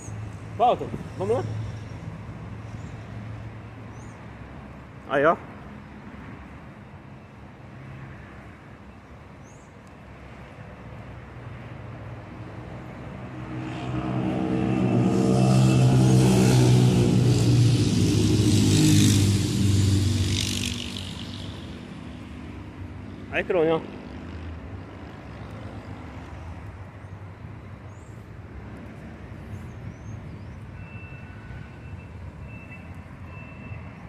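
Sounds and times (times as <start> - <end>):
coach diesel engine passing: 12.4 - 25.1.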